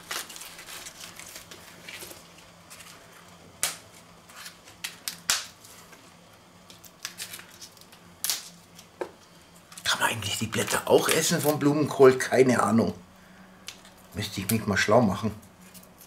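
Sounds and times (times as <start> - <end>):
leaf stalks snapping: 3.6 - 5.6, 6.7 - 8.9.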